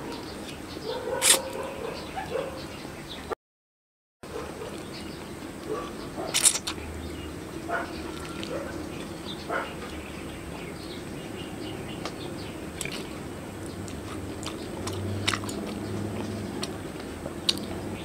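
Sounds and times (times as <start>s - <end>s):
person chewing noodles: 1.2s - 1.5s, 8.0s - 9.2s, 12.7s - 17.8s.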